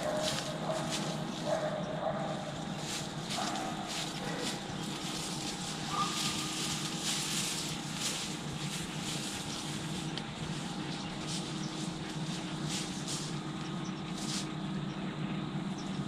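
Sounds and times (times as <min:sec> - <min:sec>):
dry grass rustling and crackling: 0:00.0 - 0:15.0
steady low hum: 0:00.0 - 0:16.0.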